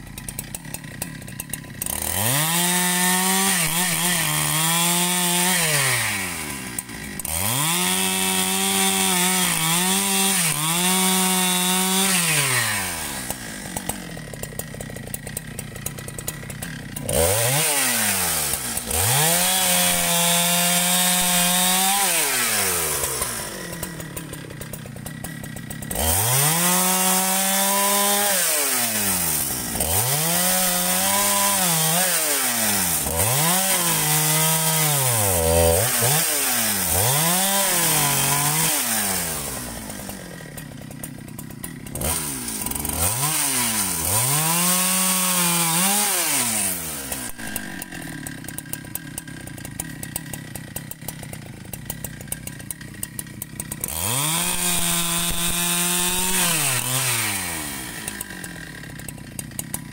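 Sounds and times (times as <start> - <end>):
chainsaw revving and idling: 0.0 - 59.9.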